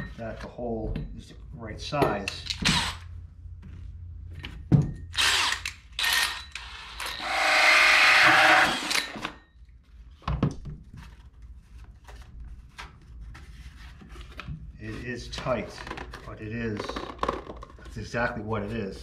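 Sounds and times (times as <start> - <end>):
drill cutting through cardboard: 2.6 - 3.1, 5.2 - 9.4.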